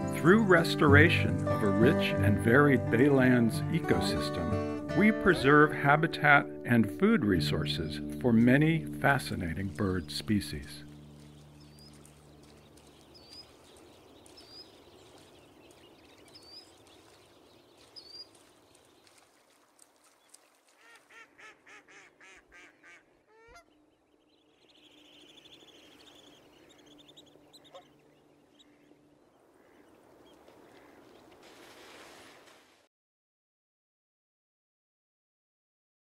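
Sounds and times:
water-bird chirping calls: 9.4 - 32.6.

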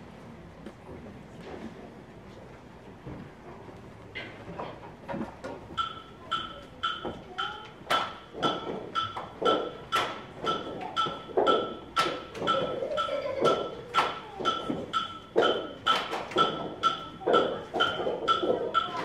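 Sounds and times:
children clapping hands: 7.9 - 8.6, 9.2 - 10.8, 11.4 - 14.8, 15.4 - 19.0.

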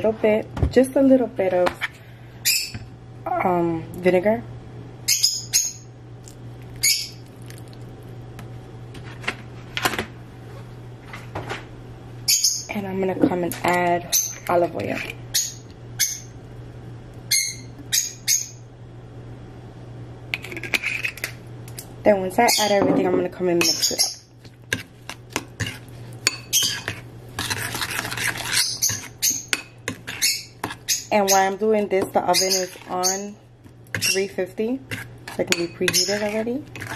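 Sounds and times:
steady low hum: 0.0 - 36.9
metal spoon scraping ceramic bowl: 20.4 - 21.3, 23.6 - 31.6, 32.3 - 33.3, 33.9 - 36.9
metal fork clinking on ceramic bowl: 35.5 - 36.4.

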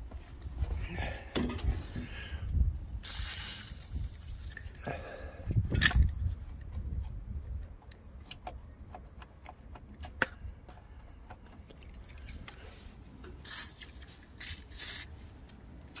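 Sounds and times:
aerosol can spraying: 3.0 - 4.5, 13.4 - 15.1.

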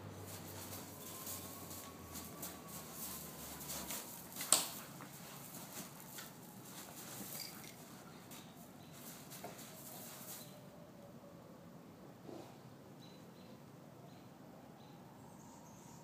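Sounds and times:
dog paws scraping on gravel: 0.2 - 10.6.

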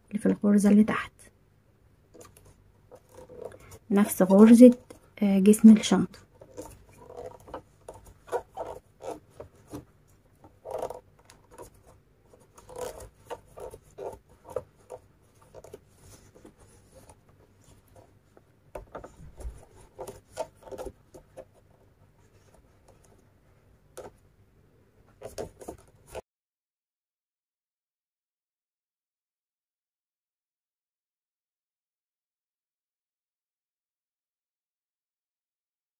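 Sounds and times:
cord rubbing against hook: 2.1 - 23.3, 25.1 - 26.2.

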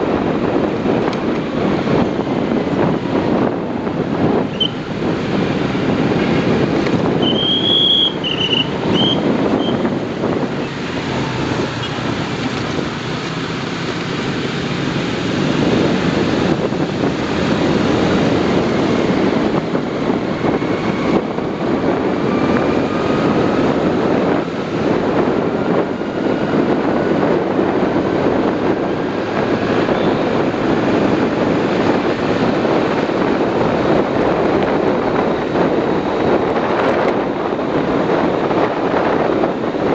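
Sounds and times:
vehicle road and engine rumble: 0.0 - 39.9
wind on microphone: 0.0 - 39.9.

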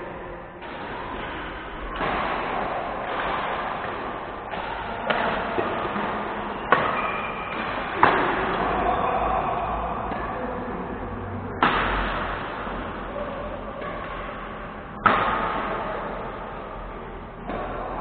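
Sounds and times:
sports hall din: 0.0 - 18.0
racket striking shuttlecock: 0.6 - 8.8, 11.6 - 16.6.

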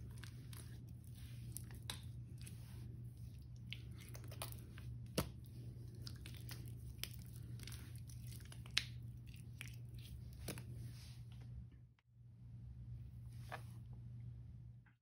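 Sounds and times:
wet sponges squishing: 0.0 - 11.6.

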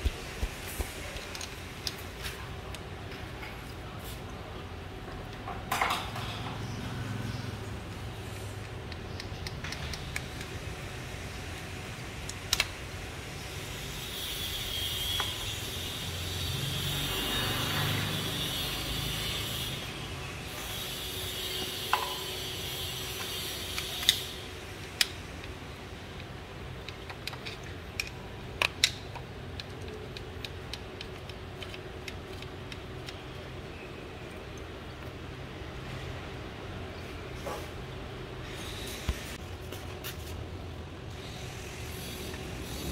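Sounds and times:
steady low hum: 0.0 - 5.6.

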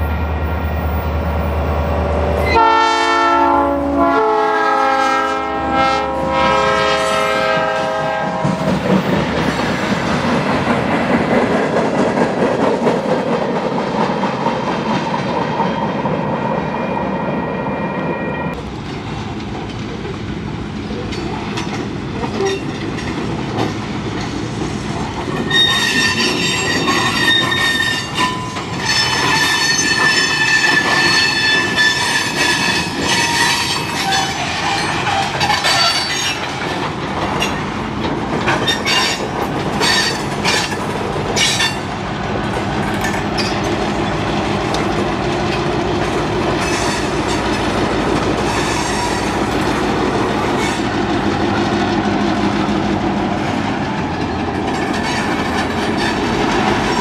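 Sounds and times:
diesel locomotive engine: 0.0 - 57.0
freight train rolling past: 0.0 - 57.0
wheels clacking over rail joints: 8.3 - 16.2, 18.5 - 57.0
steel wheels squealing: 25.4 - 36.6, 38.6 - 40.8, 46.6 - 47.6, 48.4 - 49.4, 54.8 - 57.0.

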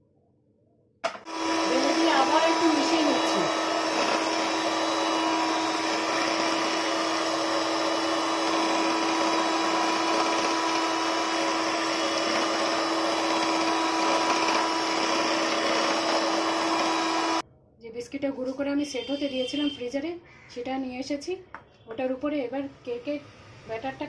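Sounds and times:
electric hand mixer humming: 1.1 - 17.4.

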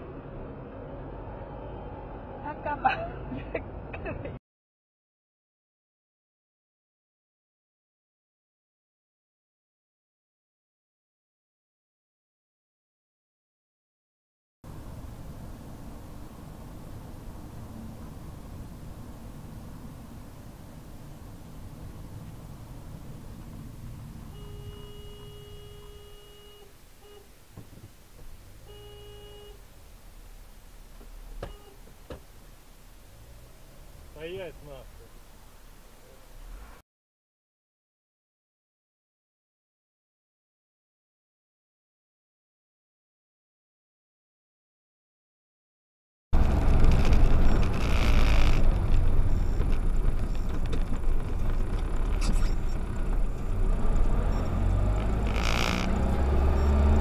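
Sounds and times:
road noise: 0.0 - 4.4, 14.6 - 36.8, 46.4 - 57.0
car engine rumble: 14.7 - 36.8, 46.4 - 57.0
car horn: 24.2 - 27.4, 28.6 - 29.7, 31.4 - 31.9.

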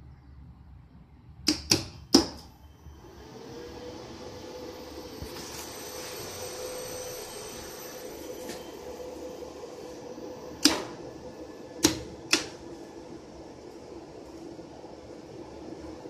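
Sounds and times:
electrical cabinet hum: 0.0 - 16.0.

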